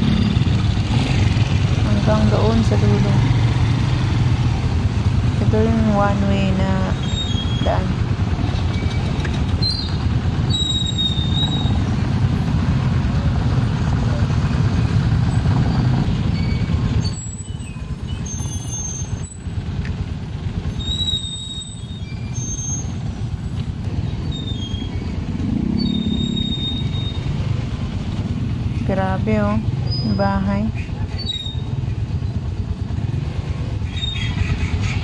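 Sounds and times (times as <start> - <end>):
motorcycle engines rumbling: 0.0 - 35.0.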